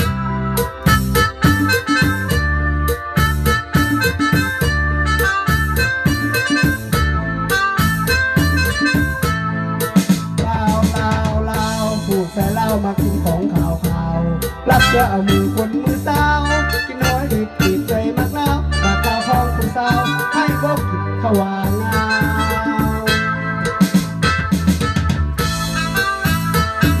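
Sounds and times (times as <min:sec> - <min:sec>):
bass line: 0:00.0 - 0:27.0
keyboard melody: 0:00.0 - 0:27.0
programmed drum beat: 0:00.0 - 0:27.0.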